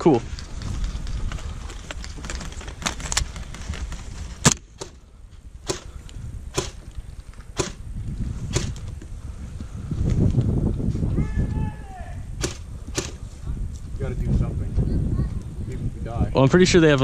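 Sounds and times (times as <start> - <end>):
airsoft gun shots: 5.6 - 5.9, 6.5 - 6.8, 7.6 - 7.8, 8.5 - 8.8, 12.4 - 13.2.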